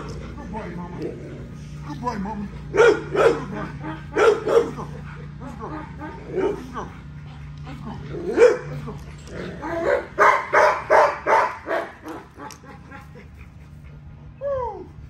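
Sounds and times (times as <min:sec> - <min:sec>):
dog barking: 0:02.7 - 0:04.9, 0:08.3 - 0:08.7, 0:09.8 - 0:12.2.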